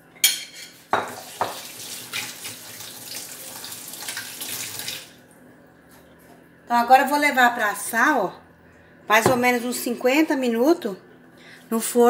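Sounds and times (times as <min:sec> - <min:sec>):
tap water running into sink: 0:00.9 - 0:05.2.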